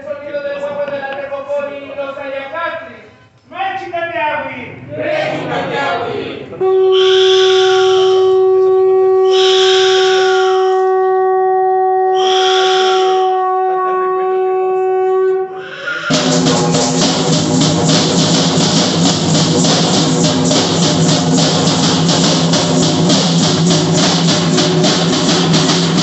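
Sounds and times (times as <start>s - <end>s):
conch shell trumpet note: 6.6s - 18.2s.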